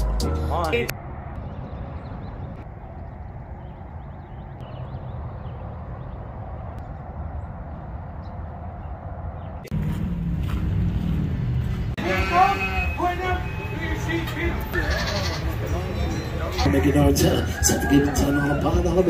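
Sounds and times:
low rumble of wind: 0.6s - 12.0s.

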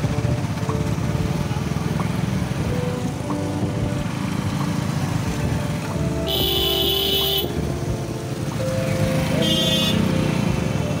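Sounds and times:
motorcycle engine and road noise: 0.0s - 11.0s
vehicle horn blasts: 6.2s - 7.6s, 9.3s - 10.2s.

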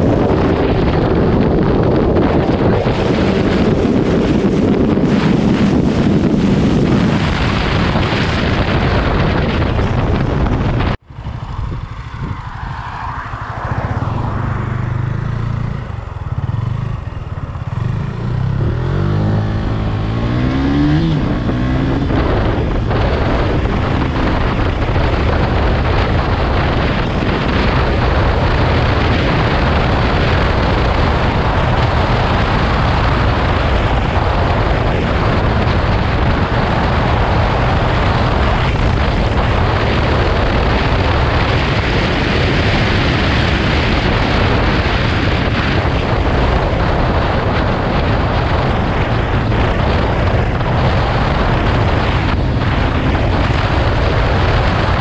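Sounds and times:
motorcycle engine running: 0.0s - 12.6s, 13.3s - 55.0s
heavy wind noise: 0.0s - 55.0s.

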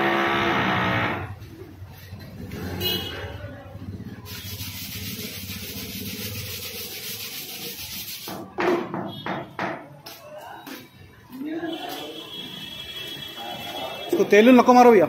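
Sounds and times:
brush scrubbing a tyre: 4.3s - 8.3s.

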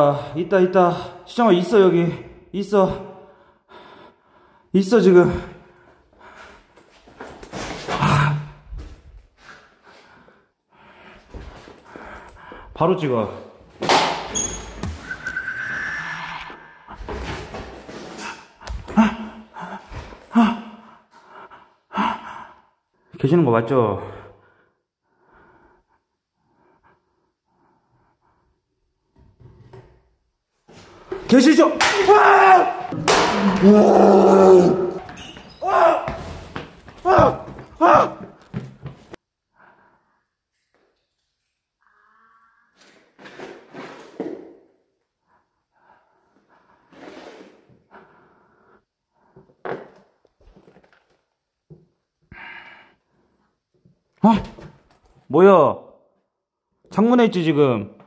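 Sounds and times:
person breathing quietly: 9.3s - 12.8s, 52.3s - 53.5s.

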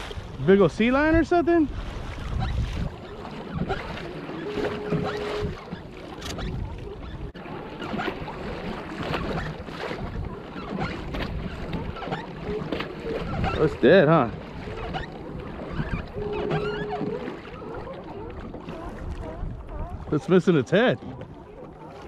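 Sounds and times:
wind on microphone: 0.0s - 20.3s
water splashing against kayak hull: 0.0s - 22.0s
short steady tone: 4.3s - 5.6s, 16.0s - 17.4s.

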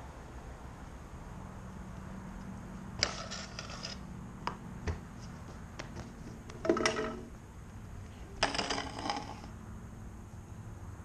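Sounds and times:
steady low hum: 0.0s - 11.0s
scooter scraping on concrete: 3.0s - 4.1s, 5.0s - 7.4s, 8.4s - 9.6s.

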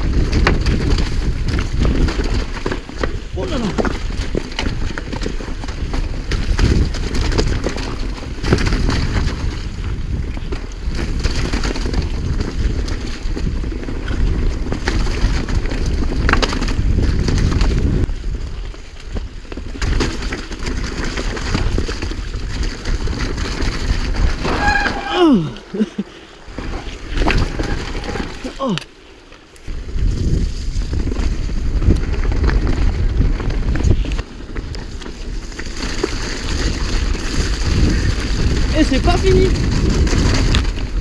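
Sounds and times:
wind on microphone: 0.0s - 20.0s, 29.7s - 41.0s
bike rattling and knocking: 0.0s - 41.0s
bike tyres crunching on gravel: 0.0s - 41.0s
rider crying out: 24.4s - 26.2s, 27.4s - 28.9s.

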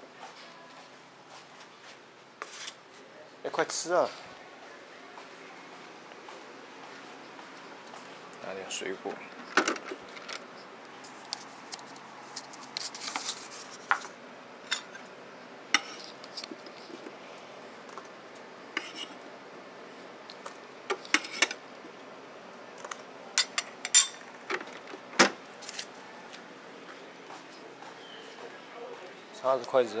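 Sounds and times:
utensils and dishes clinking: 20.9s - 21.6s, 23.4s - 24.8s.

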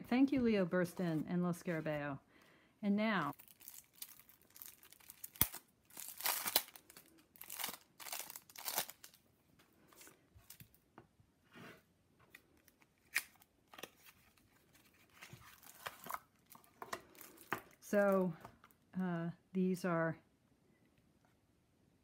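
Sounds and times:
cellophane crinkling and tearing: 3.2s - 9.2s, 12.6s - 18.2s.

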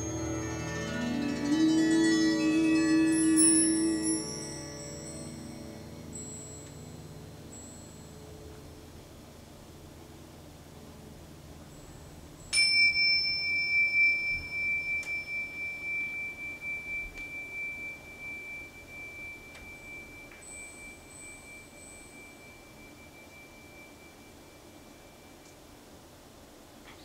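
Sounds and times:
high bell-like tone ringing: 0.0s - 8.9s, 11.7s - 25.8s.

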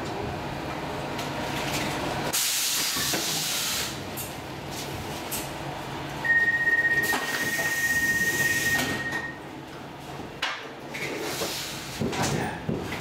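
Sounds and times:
high-pitched door warning tone: 6.2s - 9.4s.

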